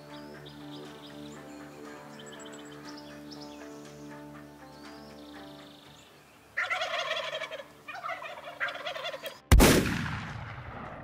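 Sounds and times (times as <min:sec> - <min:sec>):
turkey gobbling: 0:06.6 - 0:09.4
shotgun blast with echo: 0:09.5 - 0:11.0.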